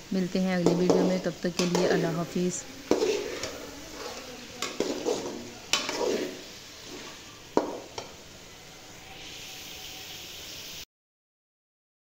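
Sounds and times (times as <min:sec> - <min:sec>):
chicken sizzling in oil: 0:00.0 - 0:10.9
spoon scraping metal pan: 0:00.5 - 0:08.3.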